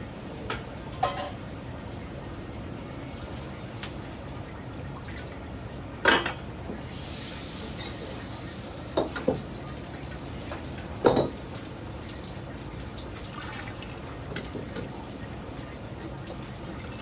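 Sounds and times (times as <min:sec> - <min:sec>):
metal ladle knocking on a wok: 0:01.0 - 0:01.4
steady hiss: 0:06.8 - 0:11.3.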